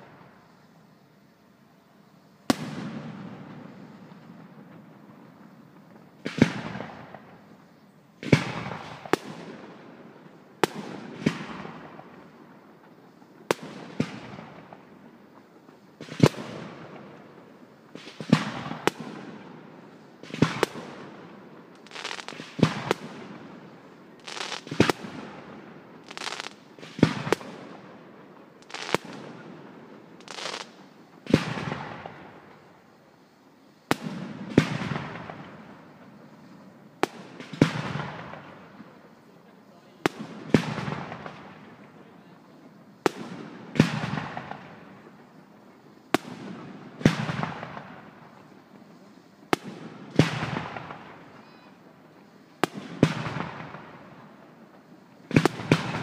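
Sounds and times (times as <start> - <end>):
firework shells bursting: 26.0 - 27.6.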